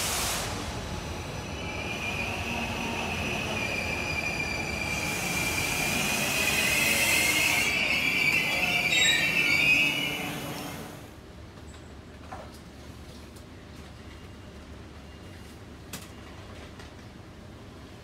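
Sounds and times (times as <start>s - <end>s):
hiss: 0.0s - 0.9s
train rumble: 0.0s - 18.0s
train wheels squealing: 1.4s - 11.0s.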